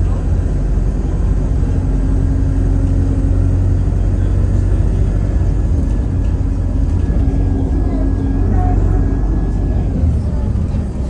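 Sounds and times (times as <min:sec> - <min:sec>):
bus engine and road noise: 0:00.0 - 0:11.0
steady hum: 0:04.8 - 0:11.0.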